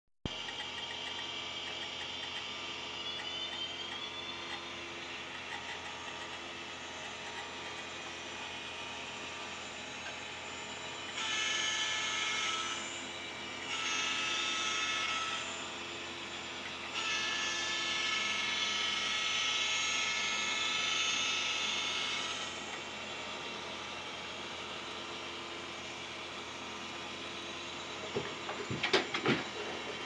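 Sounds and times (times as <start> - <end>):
model train running hum: 0.3 - 30.0.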